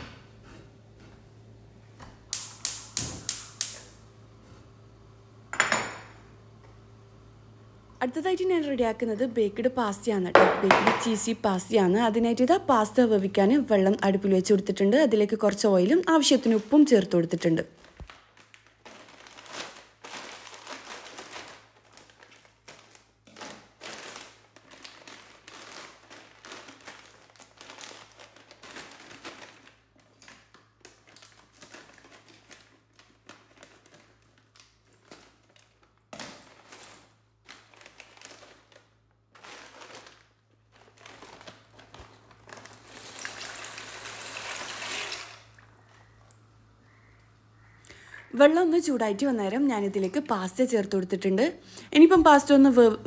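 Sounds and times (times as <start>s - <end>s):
plastic packet crinkling: 15.9s - 46.2s.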